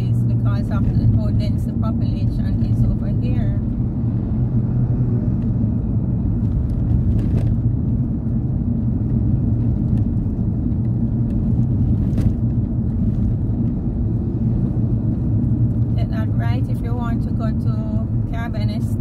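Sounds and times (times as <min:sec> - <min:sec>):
car engine and tyres rumbling: 0:00.0 - 0:19.0.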